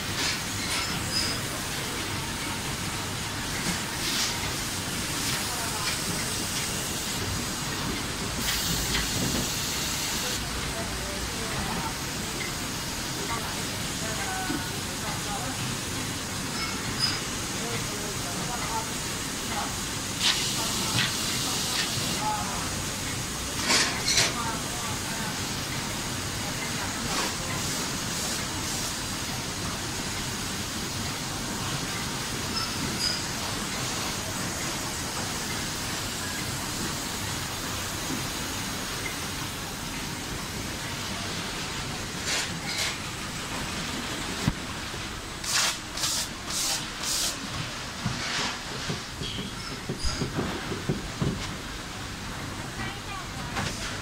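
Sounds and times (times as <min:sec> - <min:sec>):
conveyor belts running: 0:00.0 - 0:54.0
packaging machinery hum and hiss: 0:00.0 - 0:54.0
compressed air hisses: 0:08.4 - 0:10.4, 0:45.4 - 0:47.5.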